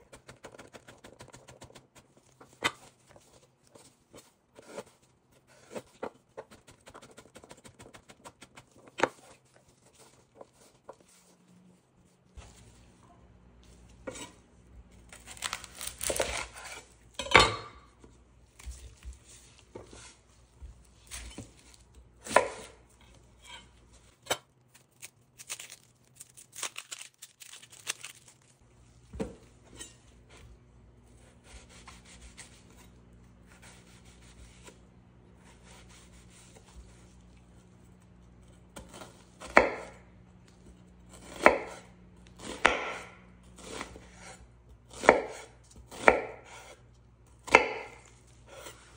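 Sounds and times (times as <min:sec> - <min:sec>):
knife slicing onion: 0:00.0 - 0:11.3, 0:13.9 - 0:17.7, 0:21.0 - 0:27.0, 0:29.1 - 0:37.6, 0:38.4 - 0:40.0, 0:40.6 - 0:48.9.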